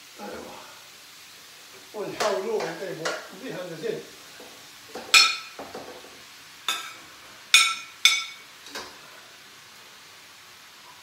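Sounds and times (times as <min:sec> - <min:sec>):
utensil clinking on ceramic plate: 0:07.6 - 0:08.4.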